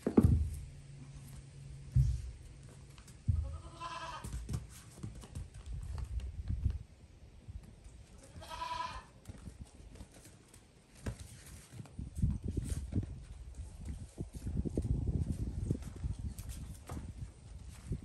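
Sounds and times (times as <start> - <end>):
goat kid bleating: 3.3 - 4.4, 8.1 - 9.2.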